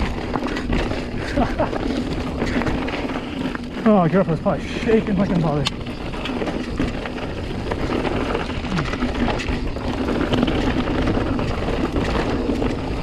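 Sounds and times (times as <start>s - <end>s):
wind noise on microphone: 0.0s - 3.8s
bike rattling: 0.0s - 13.0s
bike tyres rolling over gravel: 0.0s - 13.0s.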